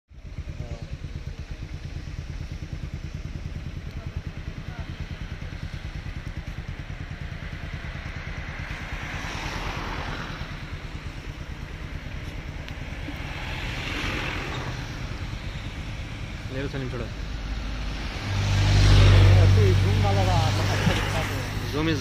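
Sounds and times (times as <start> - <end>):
car engine idling: 0.1 - 22.0
tyres hissing on wet road: 8.6 - 16.5, 17.2 - 22.0.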